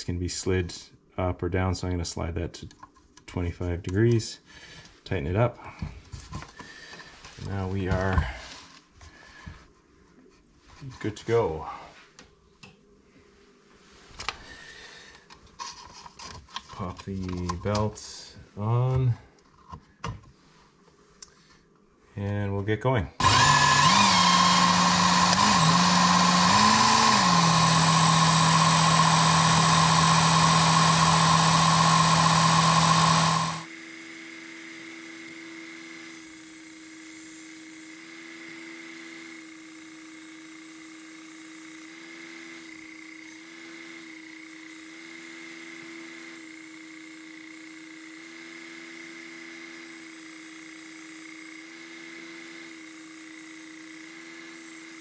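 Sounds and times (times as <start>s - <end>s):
belt sharpener motor running: 23.2s - 55.0s.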